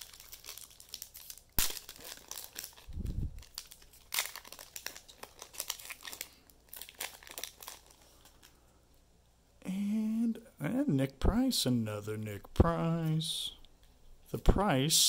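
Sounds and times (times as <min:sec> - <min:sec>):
card wrappers crinkling: 0:00.0 - 0:08.6.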